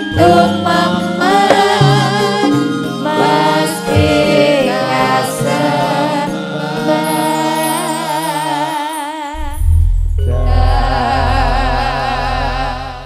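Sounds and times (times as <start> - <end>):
keyboard-led band: 0.0 - 8.6
person singing with vibrato: 0.0 - 9.6, 10.2 - 13.0.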